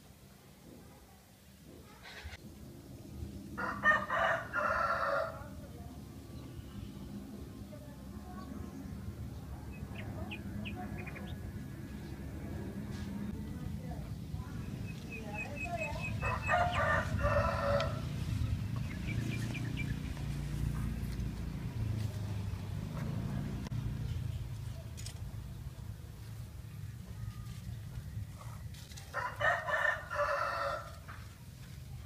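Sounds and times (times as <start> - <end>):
steady low rumble: 2.4 - 4.6, 5.3 - 29.0
rooster crowing: 3.6 - 5.5, 16.2 - 18.2, 29.1 - 31.0.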